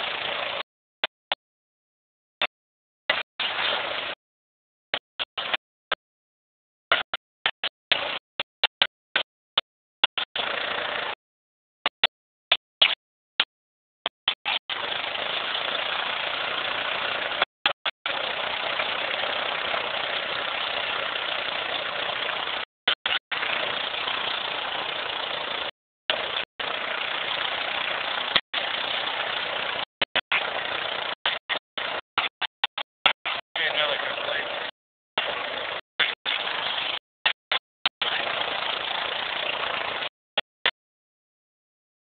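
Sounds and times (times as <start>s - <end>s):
atv engine running: 0.0s - 1.4s, 3.1s - 4.2s, 6.9s - 11.2s, 14.1s - 40.8s.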